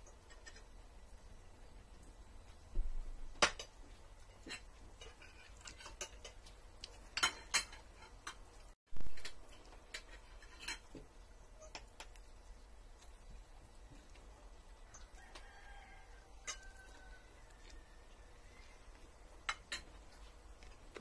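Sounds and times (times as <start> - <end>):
cutlery clinking on plates: 4.4 - 6.5, 7.1 - 8.5, 9.1 - 11.0, 16.4 - 17.0, 19.4 - 20.0.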